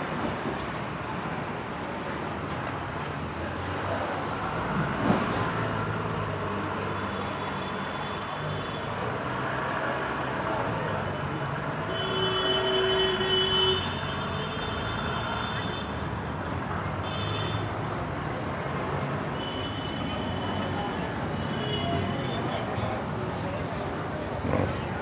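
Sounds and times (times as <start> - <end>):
road traffic engines and tyres: 0.0 - 25.0
vehicle horn: 11.9 - 14.6.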